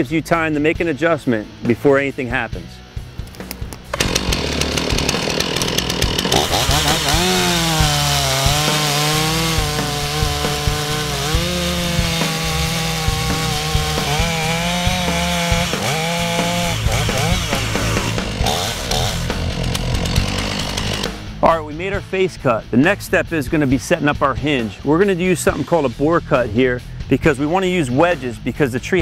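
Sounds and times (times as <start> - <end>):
chainsaw cutting wood: 3.3 - 21.4.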